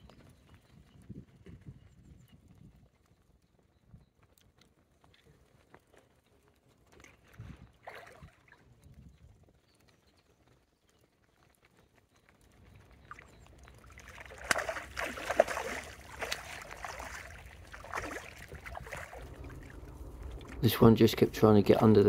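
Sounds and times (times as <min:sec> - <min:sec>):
fish splashing in water: 0:07.8 - 0:08.6, 0:13.1 - 0:20.7.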